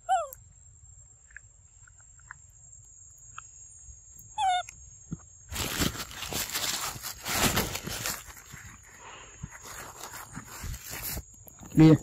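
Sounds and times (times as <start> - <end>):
loud crackling rustle: 5.5 - 11.3.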